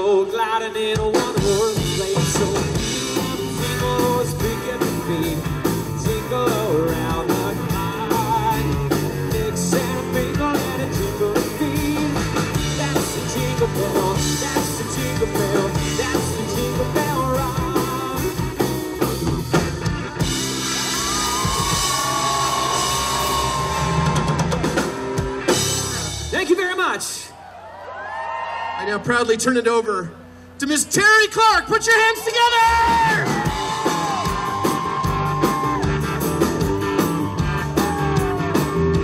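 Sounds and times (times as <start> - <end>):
man singing: 0.0 - 18.8
guitars: 0.0 - 27.1, 32.7 - 39.0
bass: 0.0 - 39.0
drum kit: 0.8 - 26.9, 32.6 - 39.0.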